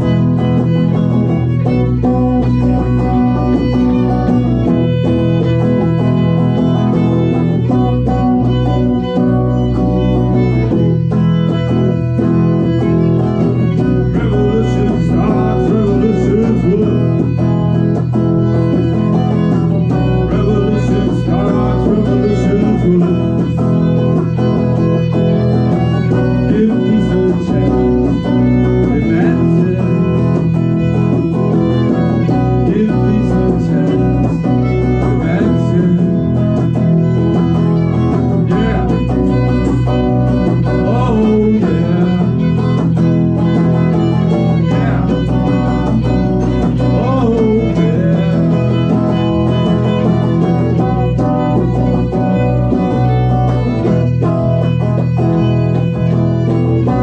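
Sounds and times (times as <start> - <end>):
bass guitar: 0.0 - 57.0
bowed violin: 0.0 - 57.0
strummed electric guitar: 0.0 - 57.0.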